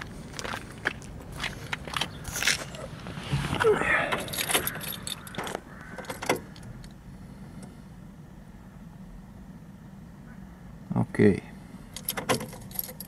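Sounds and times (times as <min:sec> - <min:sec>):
car keys jangling and clicking: 0:04.0 - 0:06.9, 0:11.9 - 0:13.0.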